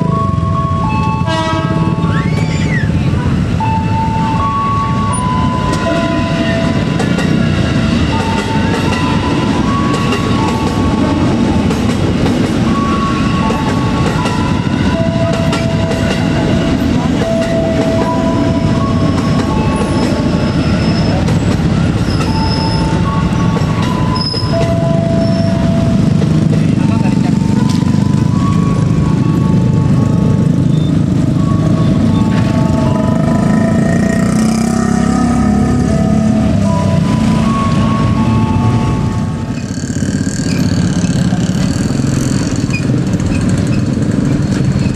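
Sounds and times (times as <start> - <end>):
train rumbling past: 0.0 - 44.9.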